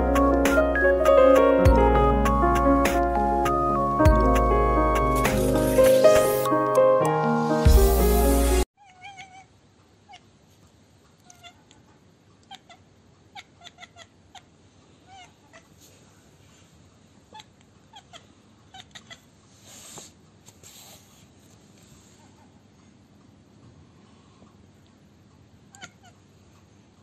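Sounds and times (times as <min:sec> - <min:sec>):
cat chirping: 0:08.8 - 0:10.3, 0:11.2 - 0:11.8, 0:12.4 - 0:15.8, 0:17.3 - 0:19.4, 0:25.7 - 0:26.3
soft rustle: 0:15.6 - 0:17.0, 0:19.4 - 0:22.9.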